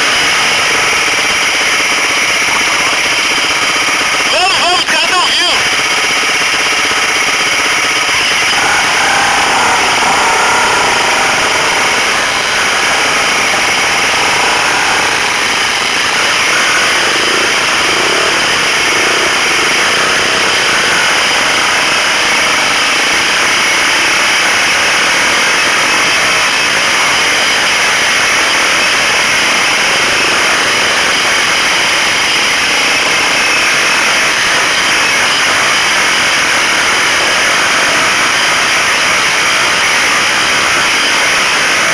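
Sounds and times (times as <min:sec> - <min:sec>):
dirt bike engine running: 0:08.2 - 0:22.1.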